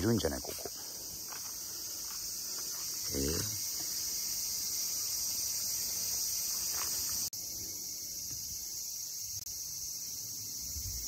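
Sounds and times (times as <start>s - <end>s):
insect chorus shrilling: 0.0s - 11.0s.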